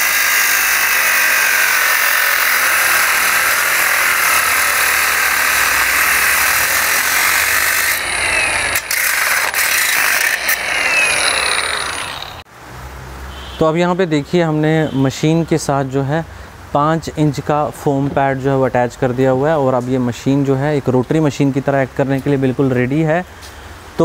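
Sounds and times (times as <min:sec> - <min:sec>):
angle grinder cutting steel bolt: 0:00.0 - 0:12.4.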